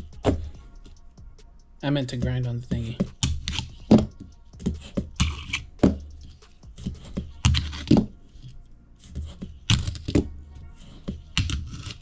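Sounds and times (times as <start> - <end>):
fingerboard grinding scrape: 3.2 - 12.0.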